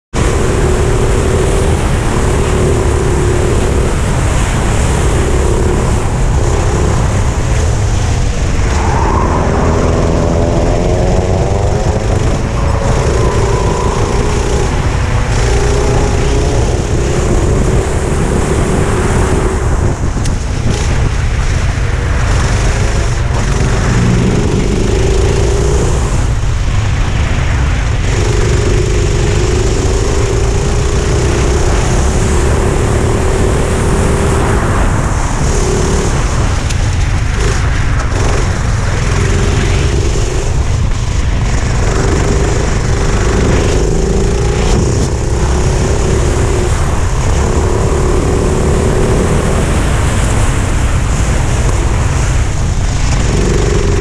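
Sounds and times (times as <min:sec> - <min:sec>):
kart engine at racing speed: 0:00.0 - 0:54.0.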